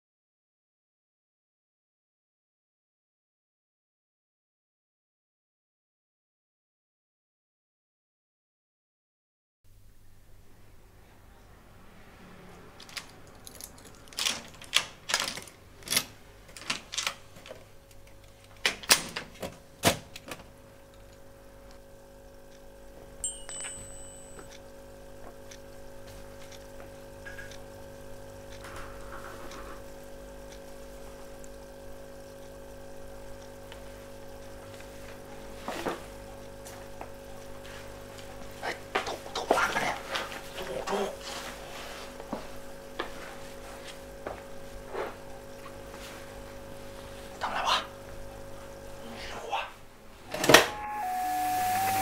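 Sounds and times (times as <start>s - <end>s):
hum of held tones: 20.9s - 34.7s, 50.4s - 52.0s.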